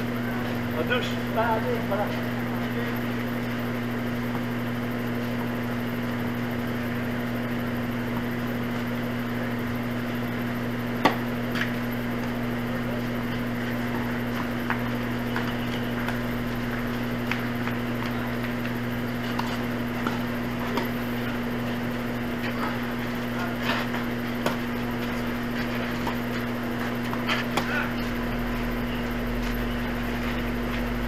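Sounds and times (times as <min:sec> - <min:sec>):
low electrical hum: 0:00.0 - 0:31.0
tennis ball struck by racket: 0:11.0 - 0:11.7.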